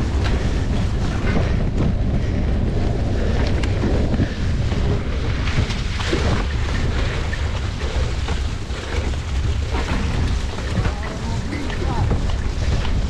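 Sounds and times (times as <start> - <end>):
bike clicks and knocks: 0.0 - 13.0
wind buffeting microphone: 0.0 - 13.0.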